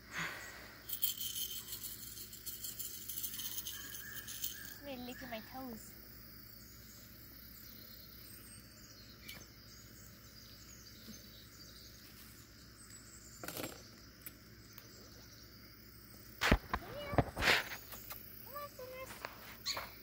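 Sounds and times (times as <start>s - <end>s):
high insect drone: 0.0s - 20.0s
faint bird chirps: 1.3s - 20.0s
brief scuffling: 16.4s - 18.2s.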